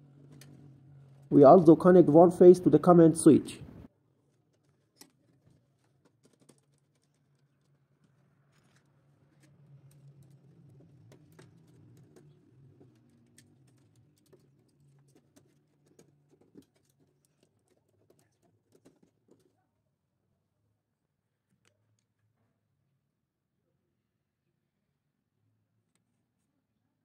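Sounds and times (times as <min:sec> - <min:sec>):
faint clicks and taps of tools: 0:04.2 - 0:19.6, 0:21.5 - 0:22.5.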